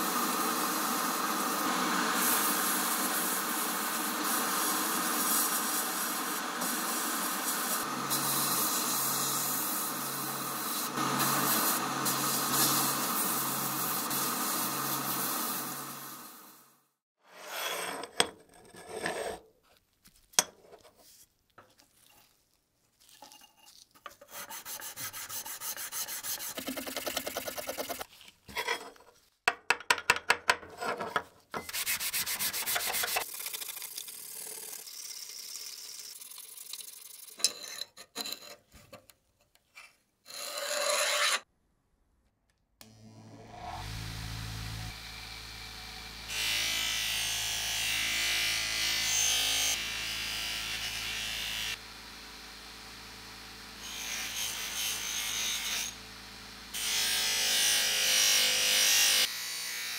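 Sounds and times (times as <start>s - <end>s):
rubbing and scraping metal parts: 20.5s - 29.3s, 37.2s - 41.4s.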